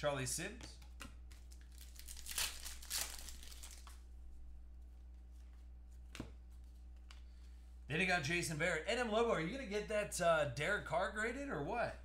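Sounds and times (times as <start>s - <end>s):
foil wrapper tearing and crinkling: 1.5s - 4.0s.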